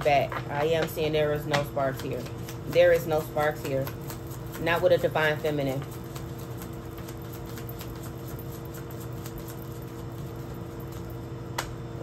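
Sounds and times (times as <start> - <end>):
steady low hum: 0.0 - 12.0
cards being shuffled: 5.8 - 11.1.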